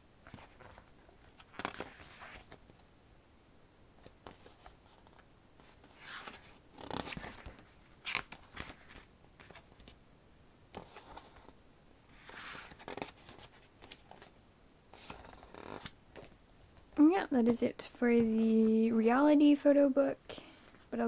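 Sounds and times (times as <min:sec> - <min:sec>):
book pages turning: 0:00.2 - 0:02.8, 0:04.0 - 0:10.0, 0:10.8 - 0:17.6.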